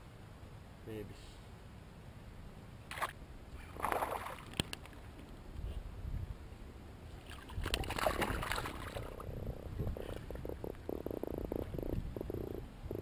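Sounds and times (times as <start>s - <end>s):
water splashing around a kayak: 2.9s - 5.1s, 7.1s - 13.0s.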